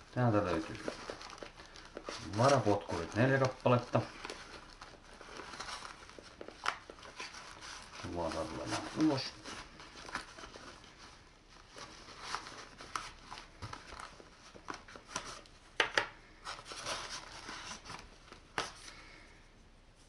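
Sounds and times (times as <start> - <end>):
fabric bag rustling: 0.0 - 15.4.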